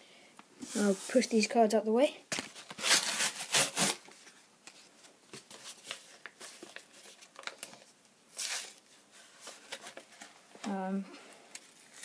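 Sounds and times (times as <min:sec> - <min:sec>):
packaging rustling: 0:05.3 - 0:10.6.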